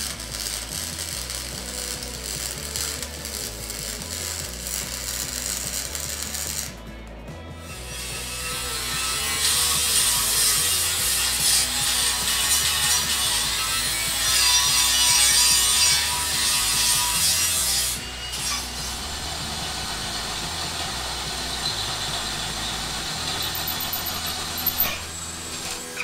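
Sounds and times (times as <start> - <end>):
angle grinder cutting steel: 0.0 - 6.8, 7.6 - 26.0
drill boring through steel: 7.7 - 26.0.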